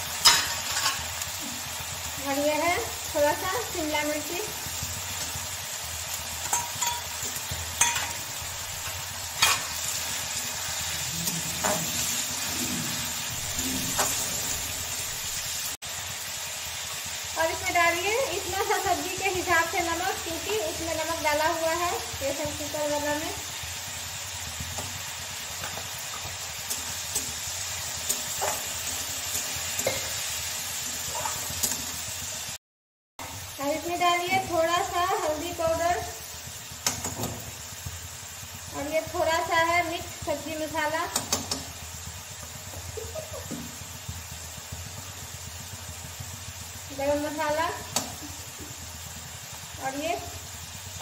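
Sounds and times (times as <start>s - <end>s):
vegetables sizzling in oil: 0.0s - 32.6s, 33.2s - 51.0s
metal utensils knocking on pan: 0.2s - 1.0s, 6.4s - 8.3s, 9.4s - 9.7s, 11.6s - 12.0s
spatula scraping a pan: 6.4s - 14.8s, 25.6s - 32.0s.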